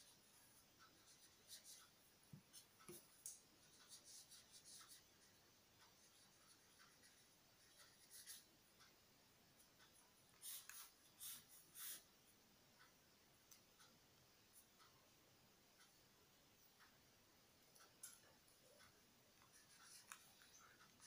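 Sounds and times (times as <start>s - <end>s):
pen scratching on paper: 3.6s - 5.0s.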